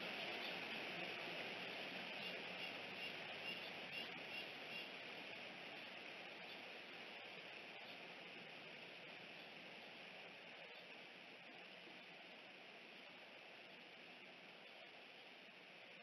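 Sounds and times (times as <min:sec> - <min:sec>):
steady microphone hiss: 0:00.0 - 0:16.0
faint high chirps: 0:02.2 - 0:04.9.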